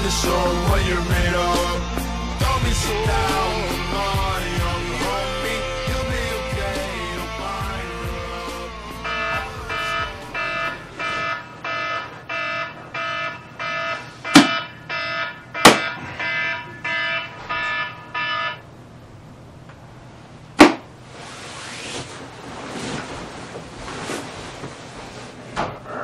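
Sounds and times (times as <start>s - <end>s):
alarm beeping: 9.0s - 18.7s
sharp knocks: 14.3s - 14.7s, 15.6s - 16.1s.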